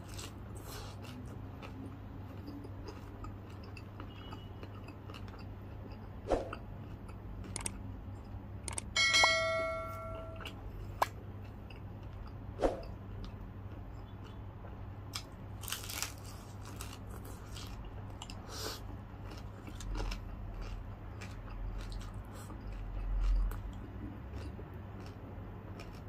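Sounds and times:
closed-mouth chewing: 0:00.0 - 0:08.9, 0:10.4 - 0:26.0
crispy pork skin crunching: 0:15.1 - 0:18.4, 0:19.2 - 0:23.7, 0:25.8 - 0:26.0.

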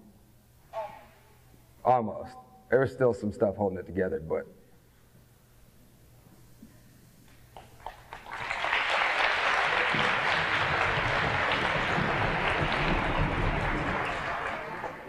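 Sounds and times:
audience clapping: 0:07.6 - 0:15.0.

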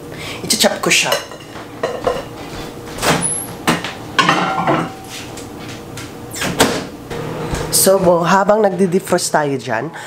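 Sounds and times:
cookware clanks and knocks: 0:01.2 - 0:02.3, 0:03.7 - 0:05.0.

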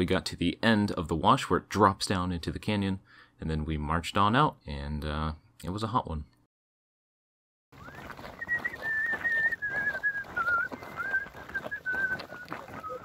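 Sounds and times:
footsteps on gravel: 0:07.8 - 0:13.0
person whistling a slow tune: 0:07.8 - 0:13.0.

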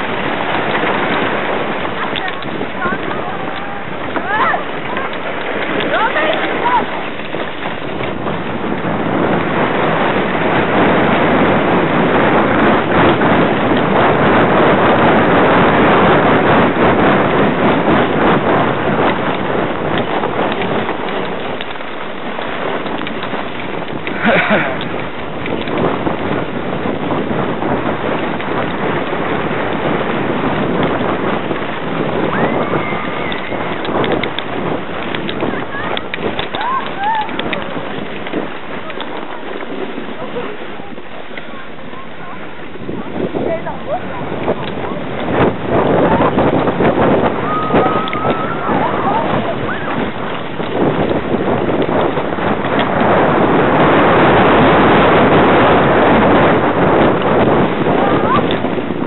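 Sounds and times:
sled runners on snow: 0:00.0 - 0:59.0
wind rushing over microphone: 0:00.0 - 0:59.0.

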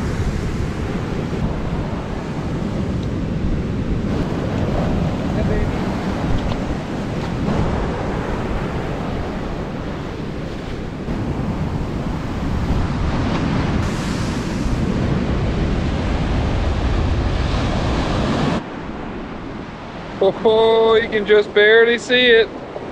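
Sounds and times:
wind on microphone: 0:00.0 - 0:21.4
ocean surf breaking: 0:00.0 - 0:22.9.

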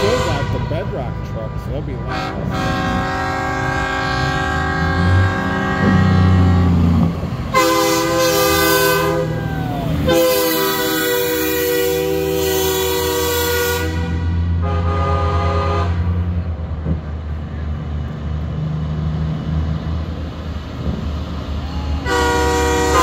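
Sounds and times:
truck air horn blasts: 0:00.0 - 0:09.4, 0:10.0 - 0:16.4, 0:22.0 - 0:23.0
diesel engine rumble: 0:00.0 - 0:23.0.

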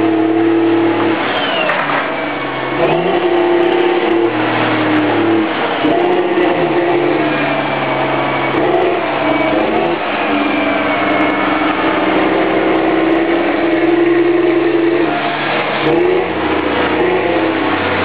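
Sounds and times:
tractor diesel engine under load: 0:00.0 - 0:18.0.

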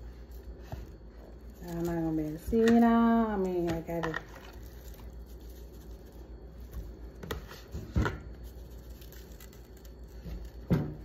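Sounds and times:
spice shaker ticks and rubs: 0:03.8 - 0:07.7, 0:08.3 - 0:10.7.

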